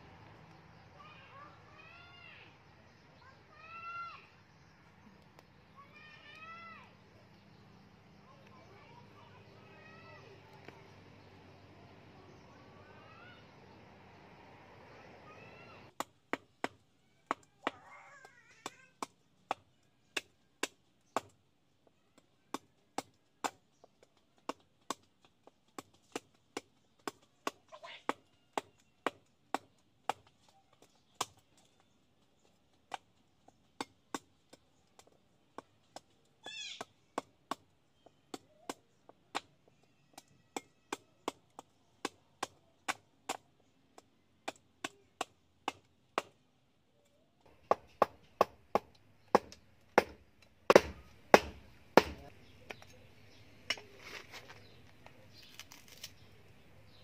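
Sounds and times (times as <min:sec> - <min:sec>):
cleaver chopping seed: 0:15.9 - 0:46.5, 0:47.5 - 0:56.2.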